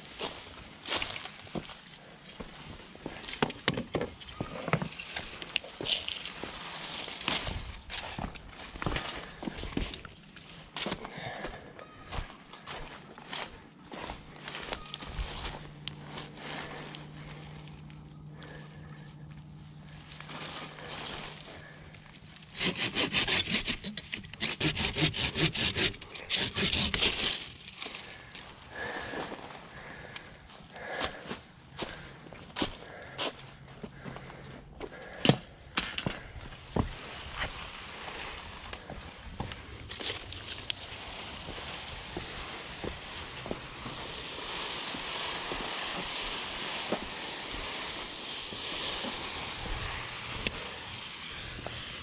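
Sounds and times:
footsteps on dirt and leaves: 0:00.0 - 0:23.0, 0:26.4 - 0:52.0
branches rustling and clicking: 0:02.6 - 0:11.4, 0:12.1 - 0:30.3, 0:35.0 - 0:52.0
handsaw cutting wood: 0:22.4 - 0:27.7, 0:39.9 - 0:52.0.

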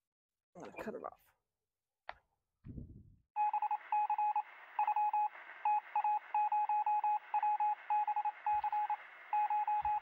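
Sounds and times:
short electronic beeps: 0:03.4 - 0:10.0.

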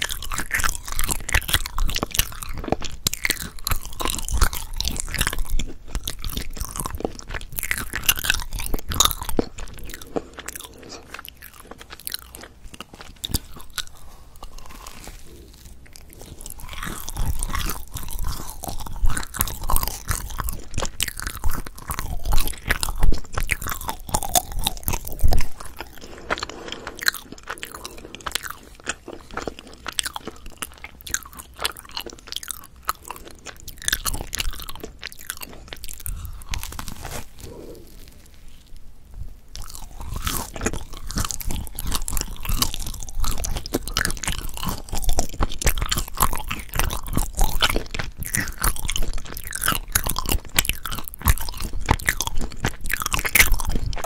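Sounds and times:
crunchy bread chewing: 0:00.0 - 0:54.0
mouth sounds: 0:33.0 - 0:38.6.

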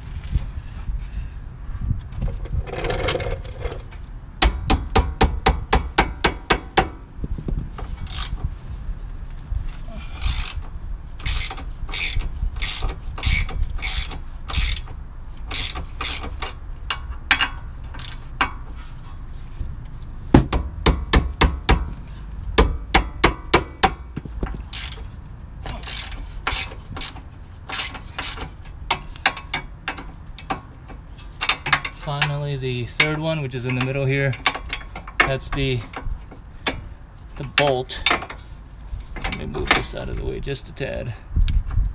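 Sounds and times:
ratchet wrench clicking: 0:08.0 - 0:08.4, 0:10.2 - 0:18.6, 0:23.0 - 0:25.1, 0:25.7 - 0:30.7.

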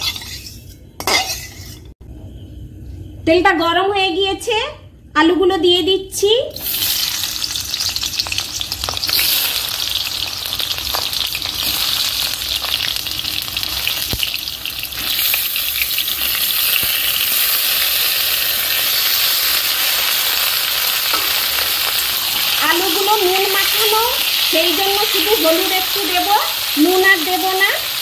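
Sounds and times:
potatoes sizzling in oil: 0:06.6 - 0:28.0.

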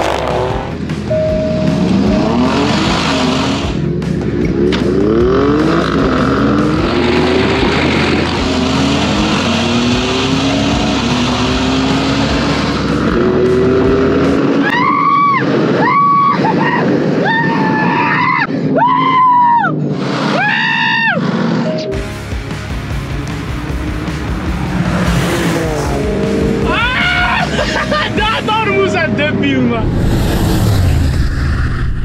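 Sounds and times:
engine revving at full throttle: 0:00.0 - 0:17.4, 0:22.6 - 0:31.9.

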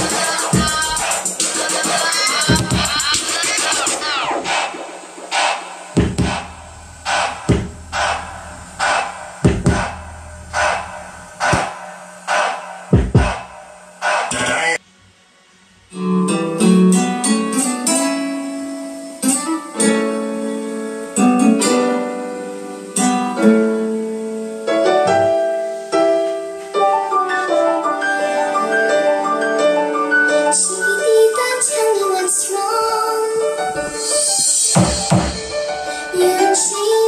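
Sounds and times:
plucked instrumental music: 0:15.9 - 0:18.5.

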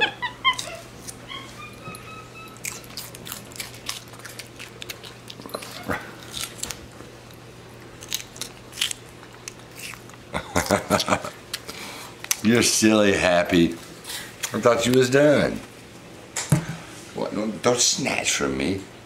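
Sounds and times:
monkey squeaking and whining: 0:00.0 - 0:03.2
monkey chewing and crunching: 0:00.5 - 0:10.8.

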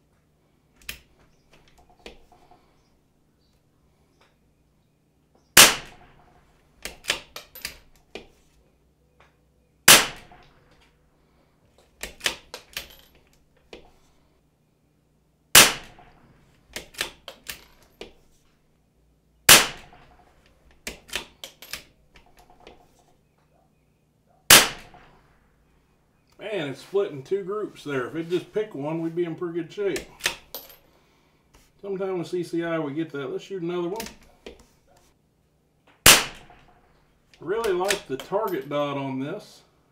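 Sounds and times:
rifle shots: 0:05.6 - 0:06.4, 0:09.8 - 0:10.5, 0:15.5 - 0:16.3, 0:19.5 - 0:20.3, 0:24.5 - 0:25.3, 0:36.0 - 0:36.8.

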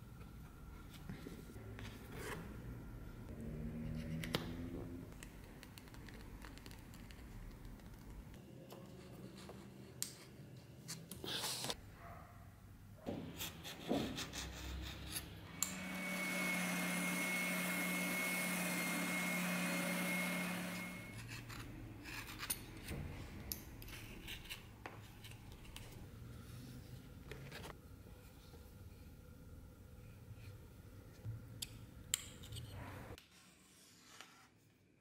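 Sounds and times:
belt sander motor whine: 0:15.6 - 0:21.2.

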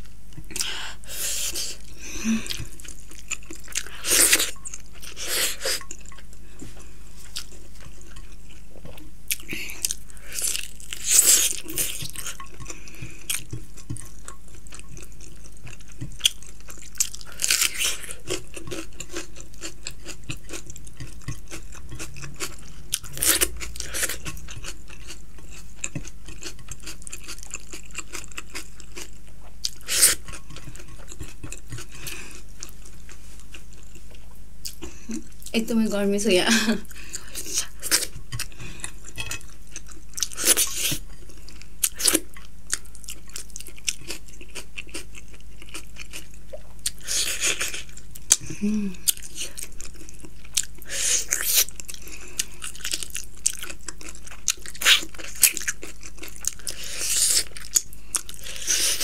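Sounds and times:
person chewing: 0:00.0 - 0:35.6, 0:36.8 - 0:59.0.

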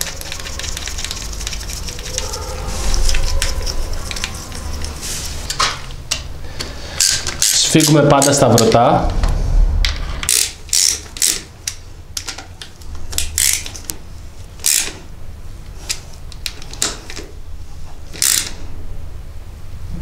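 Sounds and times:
socket ratchet clicking: 0:10.2 - 0:12.4, 0:13.2 - 0:13.9, 0:14.6 - 0:15.0, 0:18.2 - 0:18.6.

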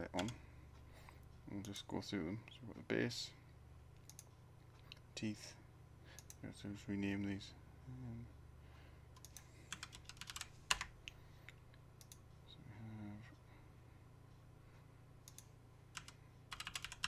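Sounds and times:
keyboard and mouse clicks: 0:04.0 - 0:05.0, 0:09.2 - 0:12.2, 0:15.2 - 0:17.0.

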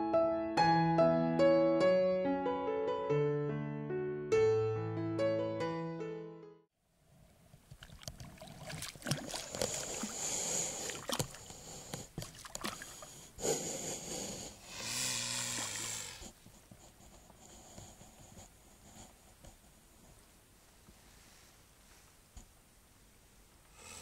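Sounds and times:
swan splashing in water: 0:07.7 - 0:13.1, 0:15.4 - 0:16.2.

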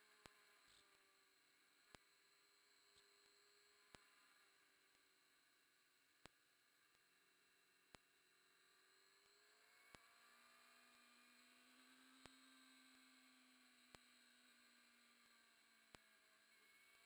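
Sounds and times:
faint electronic hum and hiss: 0:00.0 - 0:17.0
faint click: 0:15.9 - 0:16.1.

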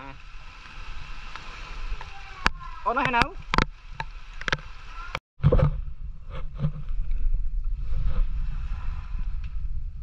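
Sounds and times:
wind rumble on microphone: 0:05.4 - 0:10.0.

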